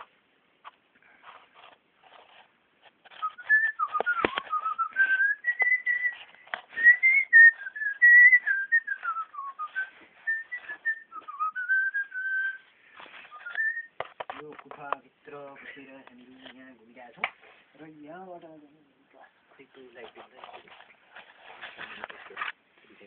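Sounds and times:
person whistling a tune: 3.2 - 14.0.

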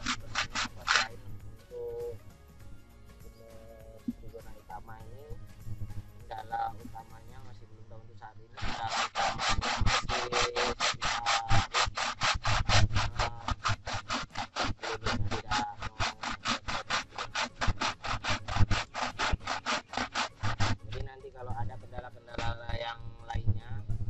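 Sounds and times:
hand saw cutting wood: 0.0 - 2.2, 8.6 - 22.8.

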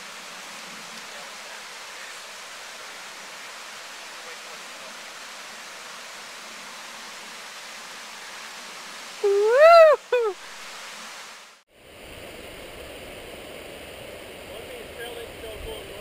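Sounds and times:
mountain stream rushing: 0.0 - 16.0
person crying out: 9.2 - 10.4.

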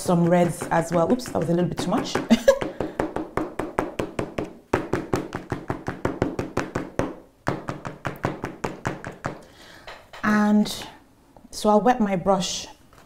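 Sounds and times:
hand tapping on paper: 0.0 - 10.1.

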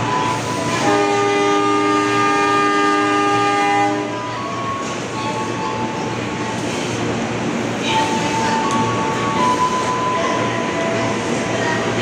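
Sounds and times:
train horn chord: 0.7 - 4.2.

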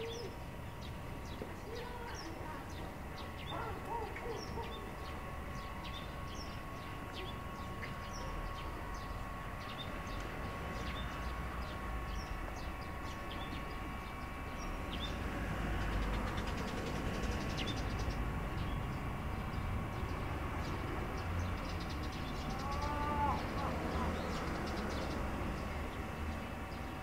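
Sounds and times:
small birds chirping: 0.0 - 27.0
steady hum: 0.0 - 27.0
vehicles rumbling on a bridge: 14.8 - 27.0.

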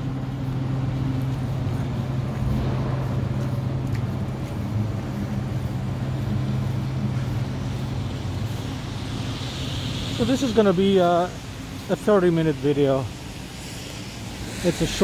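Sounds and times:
low engine hum: 0.0 - 15.0
street traffic: 0.0 - 15.0.

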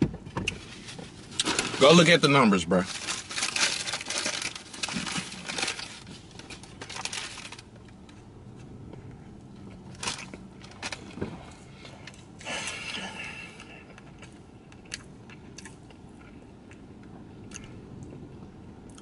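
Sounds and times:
paper wrapper crinkling: 0.6 - 7.7, 9.9 - 11.1.

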